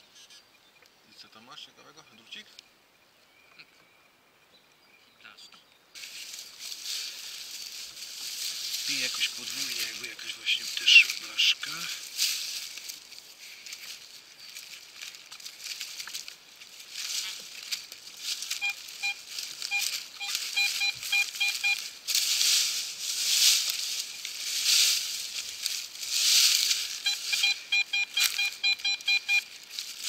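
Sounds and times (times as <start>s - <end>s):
leaves and earth rustling: 4.8s - 30.0s
metal detector beeps: 8.9s - 11.6s, 18.4s - 22.0s, 23.9s - 24.3s, 26.4s - 29.6s.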